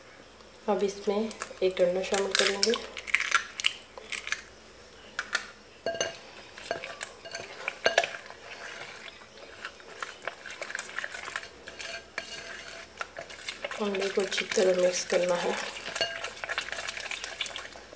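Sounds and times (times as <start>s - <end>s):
spatula scraping a bowl: 5.9s - 17.9s.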